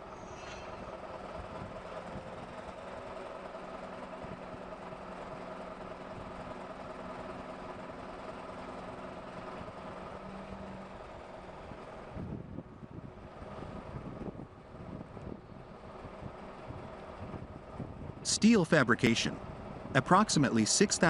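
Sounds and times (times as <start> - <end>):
machinery humming: 18.3 - 21.0.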